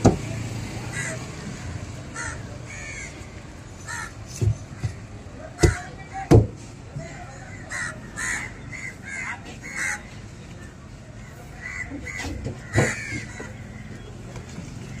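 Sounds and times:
crows cawing: 0.8 - 5.0, 7.0 - 10.2, 11.2 - 14.1.

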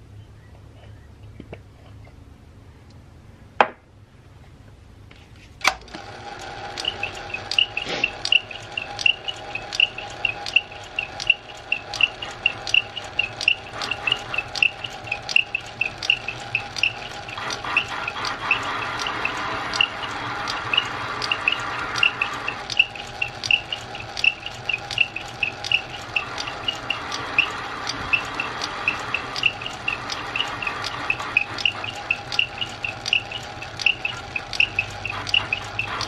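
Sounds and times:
metal lathe humming and ticking: 5.8 - 36.0
cutting tool rasping metal: 6.5 - 36.0.

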